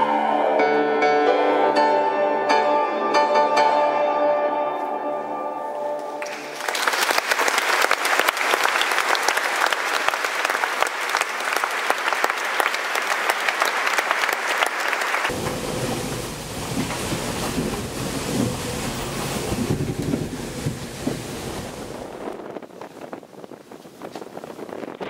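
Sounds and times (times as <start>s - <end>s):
audience applause: 6.1s - 21.6s.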